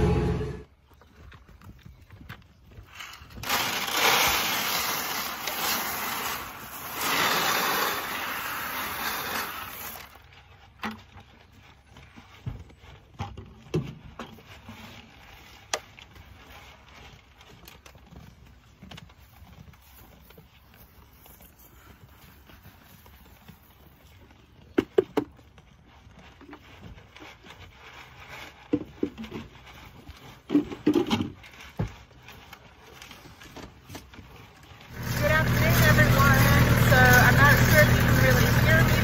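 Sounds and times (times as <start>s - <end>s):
grain pouring into metal trough: 3.4s - 10.2s, 34.9s - 39.0s.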